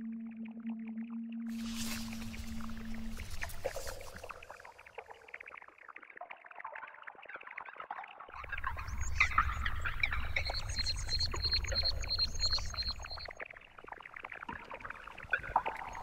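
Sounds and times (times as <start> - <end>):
bird chirps: 8.4 - 13.4
high-pitched pulsing chirp: 8.4 - 13.4.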